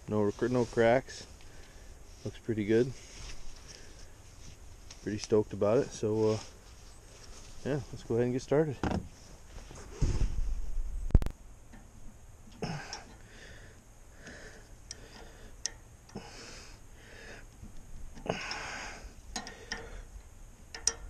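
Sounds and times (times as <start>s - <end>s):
metal clicks and clinks: 19.3s - 20.0s, 20.7s - 21.0s.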